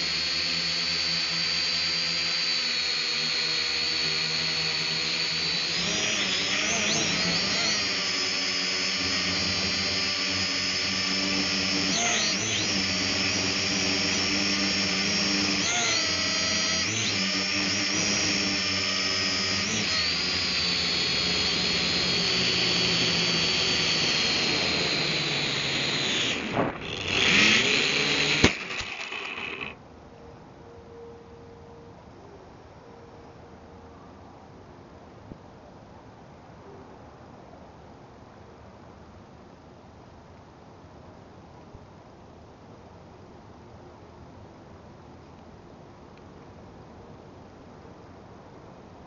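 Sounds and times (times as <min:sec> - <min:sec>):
toy drone motors whining: 0:00.0 - 0:29.8.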